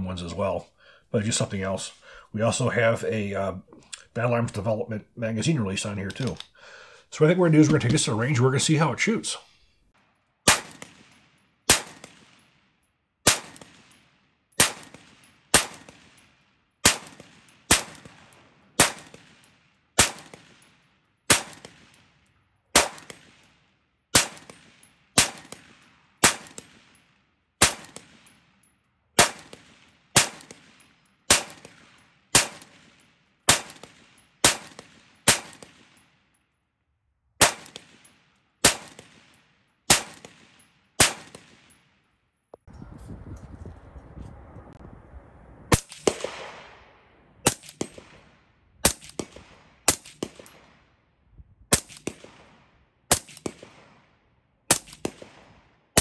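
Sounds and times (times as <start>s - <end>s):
rifle shots with echo: 10.4s - 28.6s, 29.2s - 36.3s, 37.4s - 42.0s, 45.7s - 50.9s, 51.7s - 56.0s.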